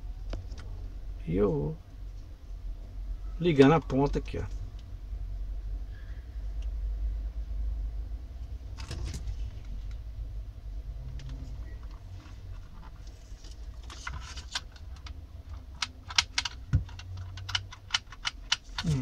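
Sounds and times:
low steady hum: 0:00.0 - 0:19.0
plastic telephone clicks and rattles: 0:13.8 - 0:19.0.

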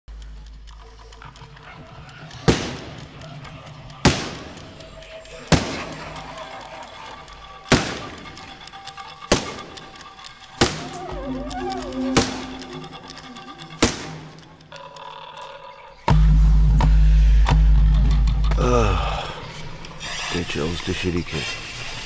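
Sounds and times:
low steady drone: 0:00.1 - 0:20.0
sharp echoing percussive hits: 0:02.4 - 0:03.1, 0:04.0 - 0:06.3, 0:07.7 - 0:08.6, 0:09.2 - 0:09.9, 0:10.6 - 0:14.6, 0:16.1 - 0:18.6.

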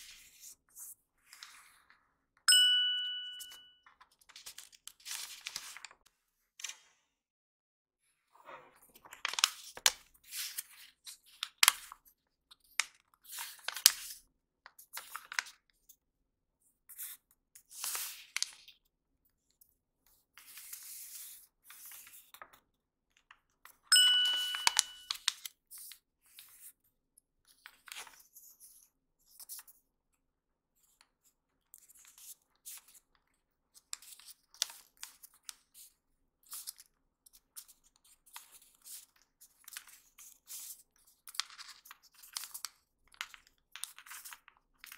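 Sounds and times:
ringing ding: 0:02.5 - 0:03.7, 0:23.9 - 0:25.2
paper folding and rustling: 0:04.0 - 0:06.0, 0:08.7 - 0:14.2, 0:36.5 - 0:44.9.

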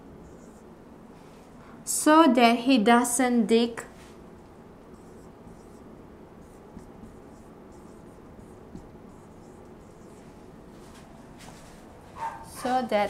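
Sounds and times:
marker writing on whiteboard: 0:00.2 - 0:00.7, 0:04.4 - 0:12.8.

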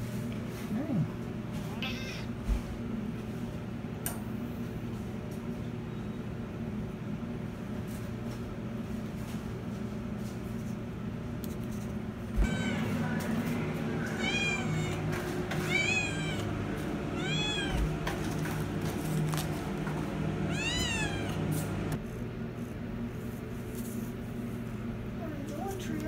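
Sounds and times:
cat meowing: 0:01.7 - 0:02.4, 0:12.4 - 0:13.1, 0:14.0 - 0:16.5, 0:17.2 - 0:17.9, 0:20.5 - 0:21.4.

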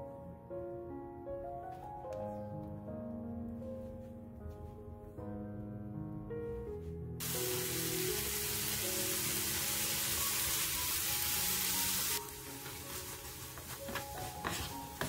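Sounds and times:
background music: 0:00.0 - 0:15.0
food sizzling in a hot pan: 0:07.2 - 0:15.0.

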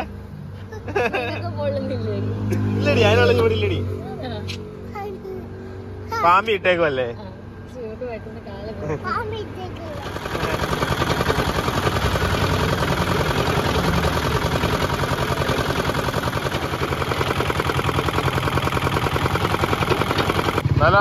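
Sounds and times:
roller crusher crushing sugarcane: 0:09.8 - 0:21.0.

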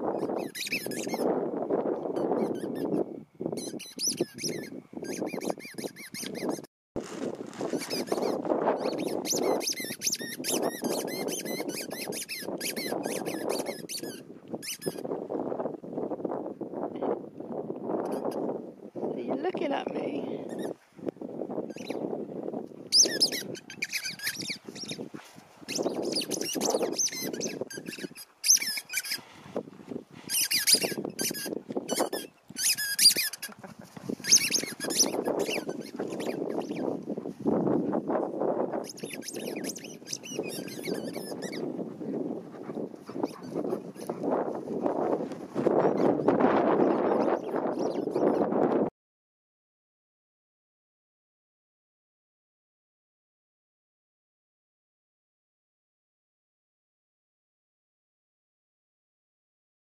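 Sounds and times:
dog chewing squeaky ball: 0:00.1 - 0:01.2, 0:02.2 - 0:03.0, 0:03.6 - 0:06.7, 0:07.7 - 0:15.0, 0:20.5 - 0:20.7, 0:21.7 - 0:22.0, 0:22.9 - 0:25.0, 0:25.7 - 0:29.3, 0:30.3 - 0:36.8, 0:38.8 - 0:41.7, 0:42.6 - 0:44.2
low rustling: 0:07.0 - 0:08.8.

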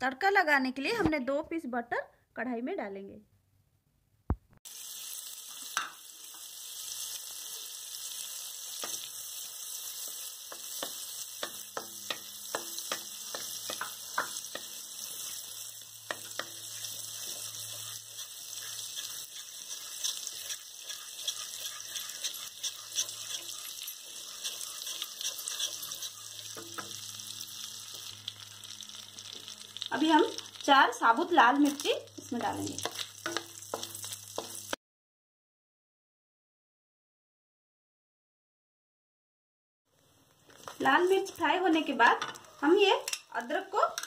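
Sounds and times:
butter sizzling in a hot pan: 0:04.6 - 0:34.8, 0:39.9 - 0:44.0.

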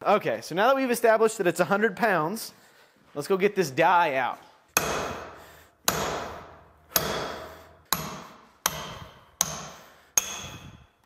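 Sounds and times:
hammer striking metal drift: 0:04.8 - 0:10.9.

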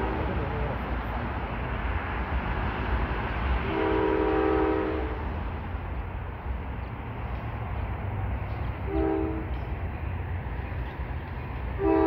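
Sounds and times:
train horn chord blast: 0:00.0 - 0:00.4, 0:03.6 - 0:05.2, 0:08.9 - 0:09.5, 0:11.8 - 0:12.0
train rumbling: 0:00.0 - 0:12.0.

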